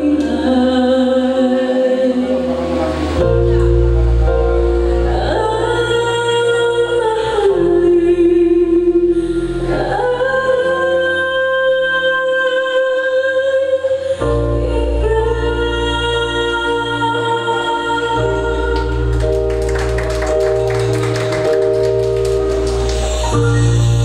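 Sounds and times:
woman singing slow song: 0.0 - 2.7, 4.9 - 19.7
sustained instrumental chords: 0.0 - 10.9, 14.3 - 24.0.

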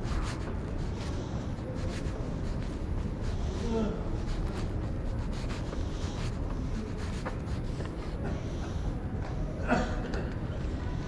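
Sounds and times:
rubbing and scraping: 0.0 - 8.4
steady low rumble: 0.0 - 9.6.

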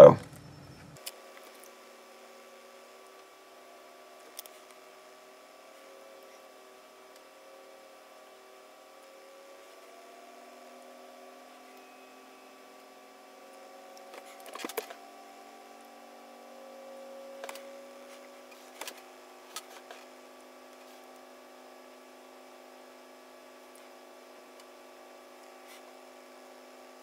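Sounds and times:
faint electrical hum: 0.0 - 27.0.

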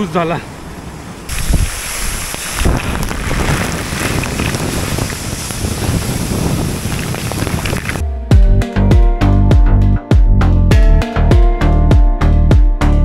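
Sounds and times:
wind buffeting microphone: 0.0 - 8.1
waterfall rushing: 1.2 - 8.0.

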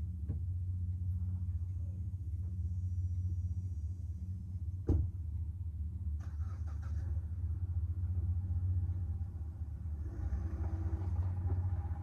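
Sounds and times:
vehicle engine idling: 0.0 - 12.0
loud thump: 4.8 - 5.2.

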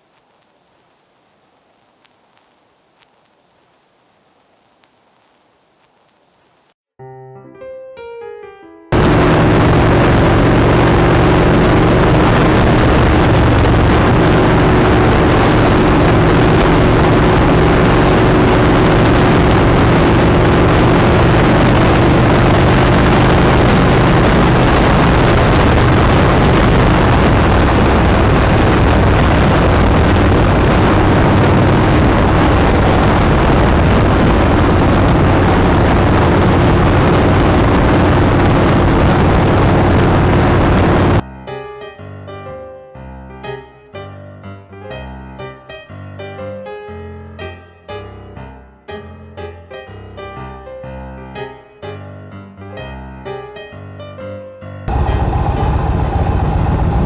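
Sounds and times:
wind rushing over microphone: 8.9 - 41.2, 54.9 - 57.0
motorcycle cruising: 9.0 - 41.2, 54.9 - 57.0.

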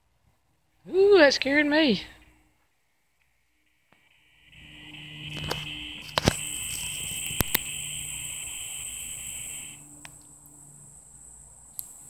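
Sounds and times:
thin high whine: 0.9 - 12.0
insect buzzing drone: 3.5 - 12.0
sharp clicks: 3.9 - 10.6.

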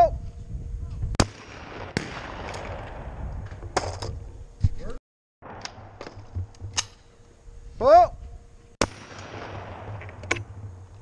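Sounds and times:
shotgun shot echo: 1.2 - 3.9, 8.8 - 10.6.

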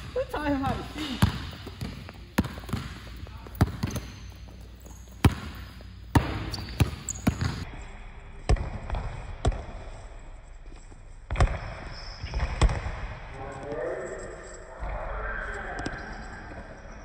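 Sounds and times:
basketball bouncing on court: 0.0 - 7.7, 8.4 - 10.0, 11.3 - 13.2
shoe squeaks: 3.4 - 7.6.

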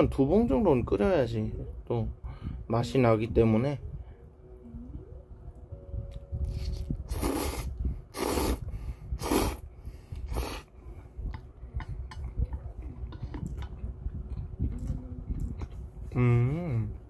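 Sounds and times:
person slurping noodles: 6.5 - 9.6, 10.2 - 10.7
wet chewing: 11.2 - 16.2.

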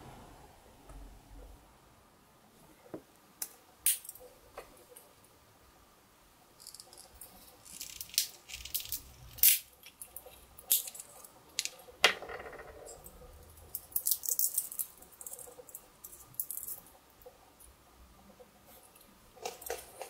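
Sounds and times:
walnut shell cracking: 6.6 - 12.2, 13.7 - 15.4.

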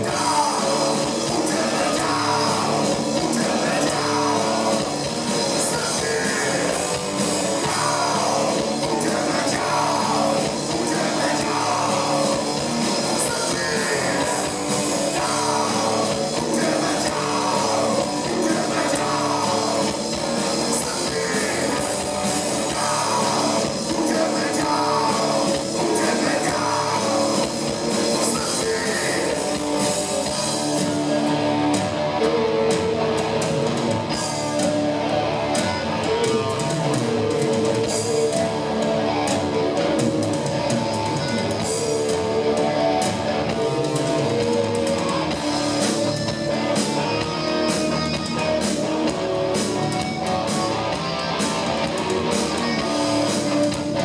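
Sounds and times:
person singing: 0.0 - 30.4
bass guitar: 0.0 - 54.0
drum kit: 0.0 - 54.0
electric guitars: 0.0 - 54.0.

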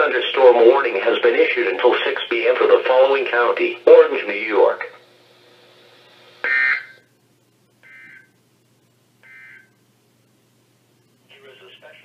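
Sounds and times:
short electronic data bursts: 7.8 - 8.4, 9.2 - 9.8.

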